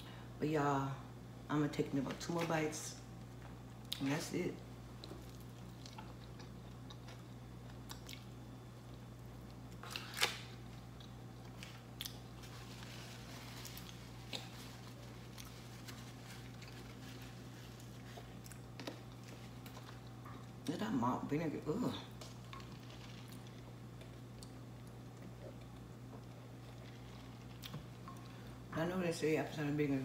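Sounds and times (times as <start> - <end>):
steady low hum: 0.0 - 30.0
person chewing food: 4.9 - 20.7, 22.1 - 28.7.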